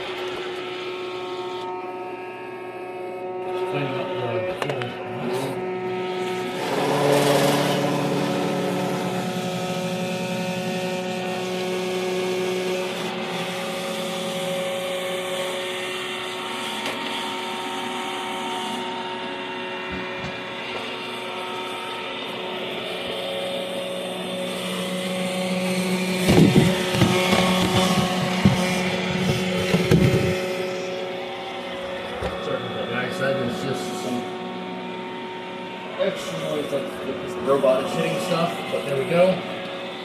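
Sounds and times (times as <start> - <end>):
robot vacuum whining: 3.4 - 40.0
robot bumping along a wall: 26.2 - 30.4.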